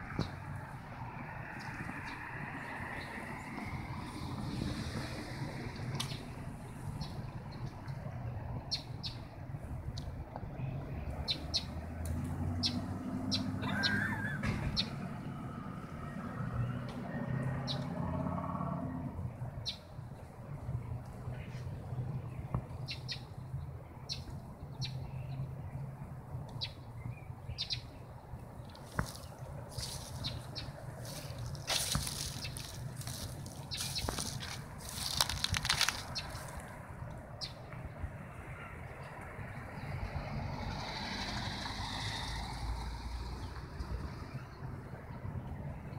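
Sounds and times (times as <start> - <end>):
car passing: 0.0 - 45.9
birds chirping: 12.6 - 15.4, 21.3 - 40.0.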